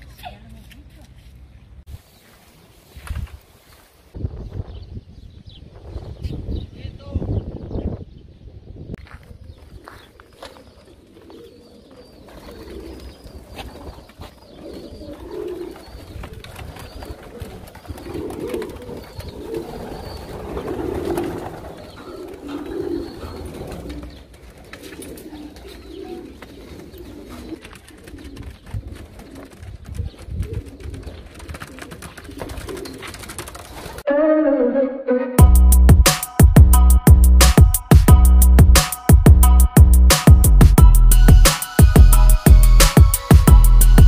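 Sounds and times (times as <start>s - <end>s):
pigeons cooing: 9.6s - 34.0s.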